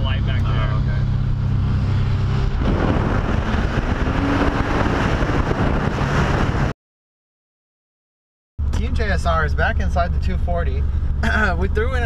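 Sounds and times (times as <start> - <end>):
car engine running: 0.0 - 6.7, 8.6 - 12.0
wind rush: 1.3 - 6.7.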